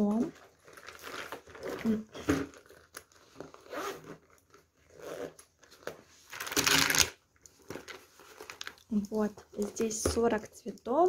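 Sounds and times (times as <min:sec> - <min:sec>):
nylon fabric rustling: 0:00.0 - 0:07.0
zipper pulled open: 0:01.0 - 0:05.8.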